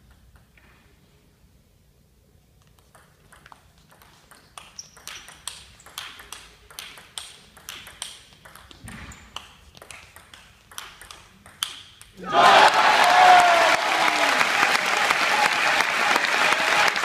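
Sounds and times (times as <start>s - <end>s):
table tennis ball clicks: 2.6s - 12.2s.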